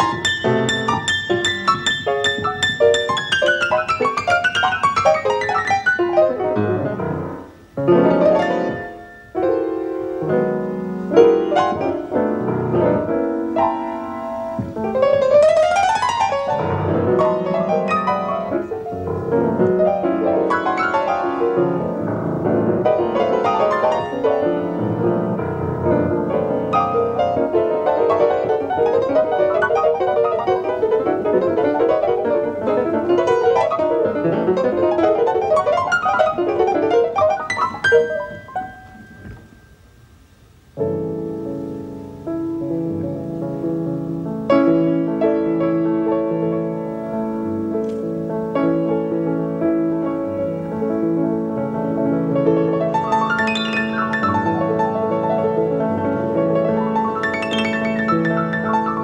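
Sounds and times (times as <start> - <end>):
free jazz piano: 0.0 - 59.0.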